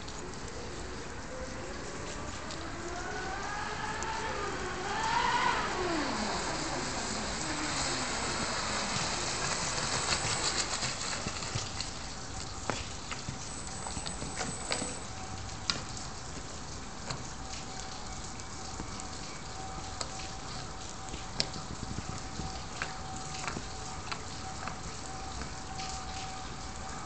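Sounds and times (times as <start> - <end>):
hull slapping water: 1.5 - 27.0
model boat motor whine: 2.6 - 10.8.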